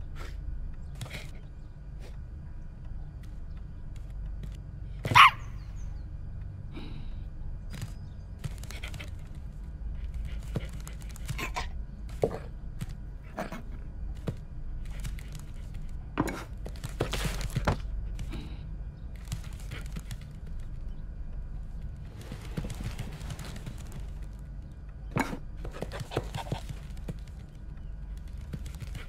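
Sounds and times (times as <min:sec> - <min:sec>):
steady low hum: 0:00.0 - 0:29.0
dog barking: 0:05.1 - 0:05.6.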